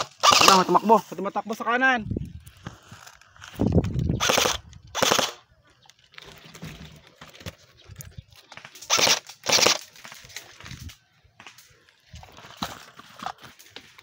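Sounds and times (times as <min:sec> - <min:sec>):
airsoft rifle bursts: 0:00.0 - 0:00.8, 0:04.2 - 0:05.4, 0:08.8 - 0:09.9.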